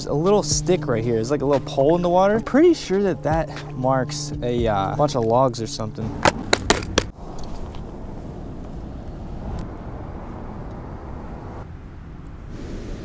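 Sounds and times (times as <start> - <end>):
wind buffeting microphone: 5.8 - 13.0.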